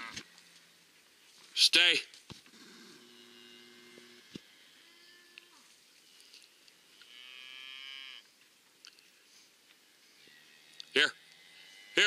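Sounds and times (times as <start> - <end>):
cattle mooing: 2.9 - 5.6, 7.0 - 8.2.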